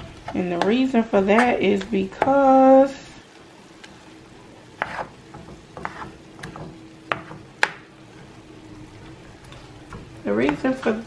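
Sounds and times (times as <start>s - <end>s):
spoon scraping frying pan: 4.8s - 8.4s.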